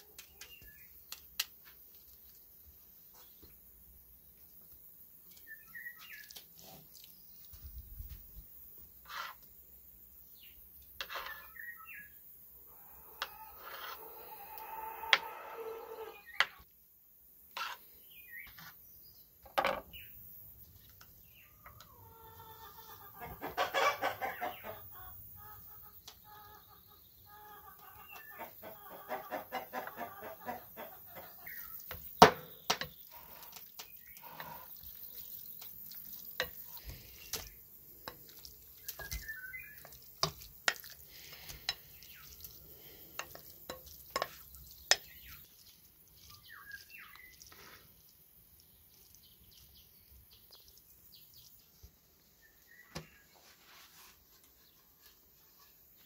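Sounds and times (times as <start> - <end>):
chickens clucking: 12.6 - 16.6, 21.4 - 32.5
wooden spoon against glass bowl: 32.7 - 47.7.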